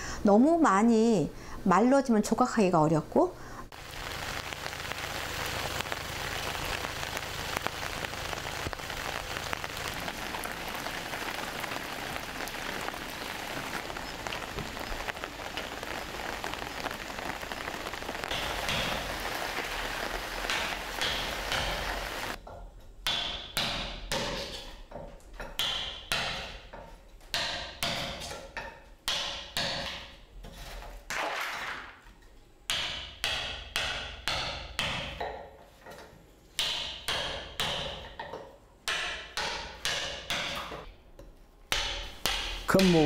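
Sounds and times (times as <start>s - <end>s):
hammer striking chisel into wood: 23.0s - 24.4s, 25.4s - 26.6s, 27.3s - 28.2s, 29.0s - 30.1s, 32.7s - 35.4s, 36.6s - 40.8s, 41.7s - 42.9s.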